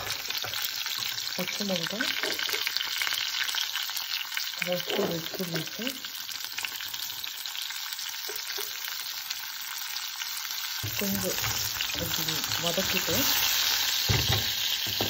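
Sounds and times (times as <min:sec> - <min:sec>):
hot oil sizzling in frying pan: 0:00.0 - 0:15.0.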